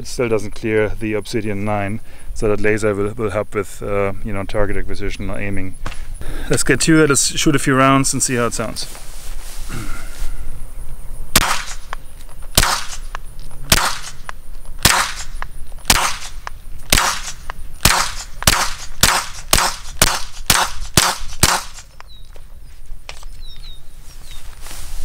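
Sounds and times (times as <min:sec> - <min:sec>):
echo of gunshots: 0:11.4 - 0:11.9, 0:12.6 - 0:13.1, 0:13.7 - 0:14.2, 0:14.8 - 0:21.9
suppressed pistol shots: 0:11.4 - 0:12.0, 0:12.6 - 0:21.9.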